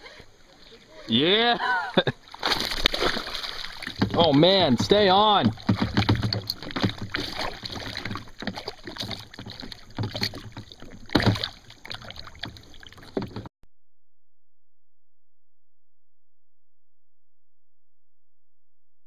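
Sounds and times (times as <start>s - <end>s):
water splashing against kayak: 0.0s - 13.5s.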